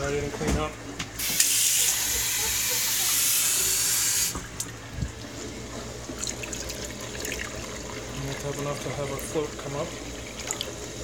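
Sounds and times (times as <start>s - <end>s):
faucet running into plastic cup: 1.2s - 5.2s, 5.9s - 11.0s
water splashing: 9.9s - 11.0s.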